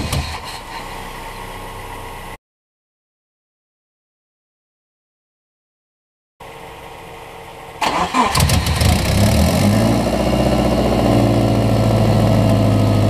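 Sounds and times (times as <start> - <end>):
car engine idling: 0.0 - 2.4, 6.4 - 13.0
car engine starter cranking: 7.8 - 9.2.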